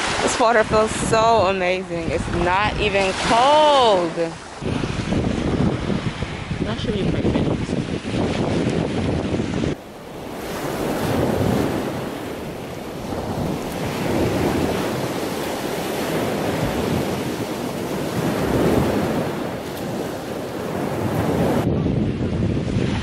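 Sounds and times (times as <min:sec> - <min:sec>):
surf washing onto shore: 0:00.0 - 0:23.0
wind buffeting microphone: 0:00.0 - 0:23.0.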